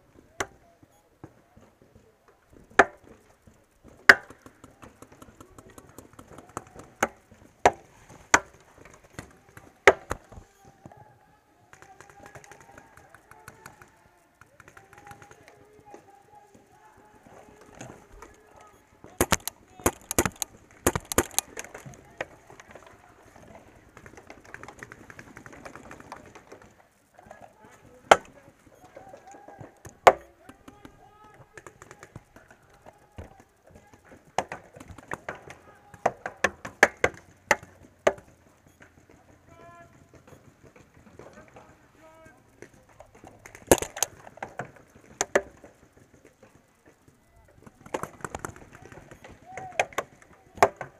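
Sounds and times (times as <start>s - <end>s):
paintball markers cracking: 1.2s - 11.0s, 11.7s - 50.9s
loud paintball gun cracks: 4.0s - 7.8s, 19.2s - 21.9s, 43.2s - 45.7s
faint pops: 26.1s - 50.9s.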